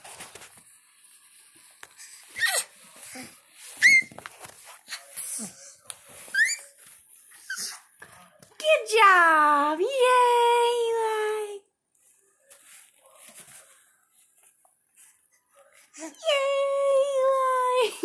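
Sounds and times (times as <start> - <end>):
baby squealing: 2.4 - 2.7, 3.8 - 4.1, 6.3 - 6.7.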